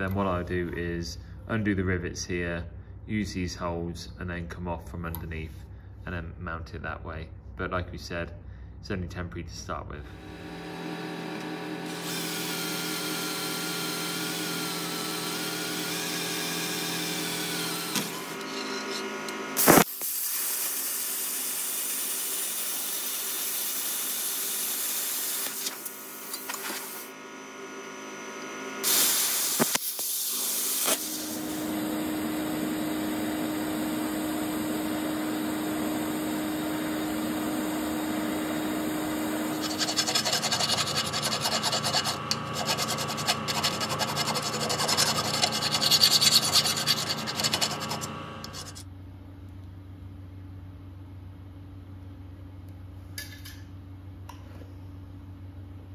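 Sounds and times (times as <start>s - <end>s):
cordless drill boring through steel: 10.1s - 19.1s, 29.5s - 48.8s
electric welding hum with hiss: 10.1s - 48.9s
handheld grinder on steel: 39.4s - 48.8s.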